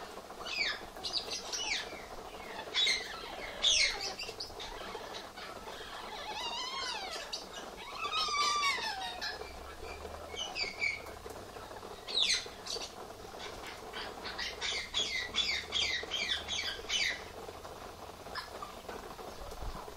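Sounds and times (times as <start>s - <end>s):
misting sprinklers hissing: 0.0s - 19.9s
parrot squawks: 2.5s - 9.6s, 13.4s - 17.3s
parrot whistled calls: 5.8s - 9.6s.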